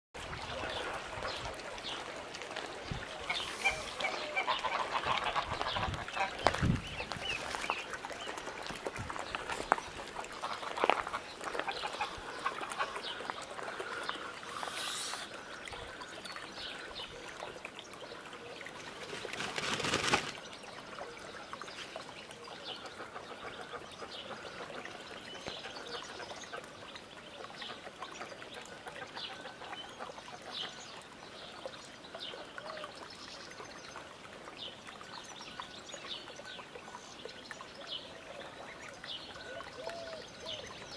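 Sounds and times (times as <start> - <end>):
geese calling: 3.2 - 6.6
high gosling peeps: 3.2 - 7.2
goose wings beating: 19.1 - 20.4.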